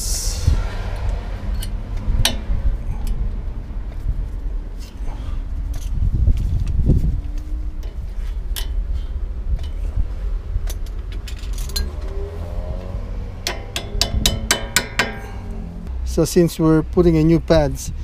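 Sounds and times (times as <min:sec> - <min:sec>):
low rumble: 0:00.0 - 0:17.3
metal clinks and taps: 0:13.4 - 0:15.5.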